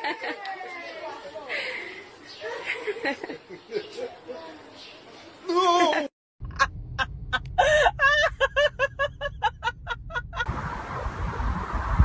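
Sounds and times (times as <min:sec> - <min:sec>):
low rumble: 0:06.4 - 0:12.0
wind noise on microphone: 0:10.2 - 0:12.0.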